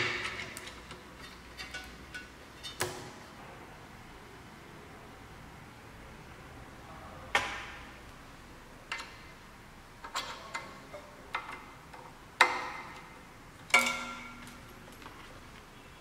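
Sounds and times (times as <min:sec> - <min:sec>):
metal pins clinking on metal: 0:12.4 - 0:15.3.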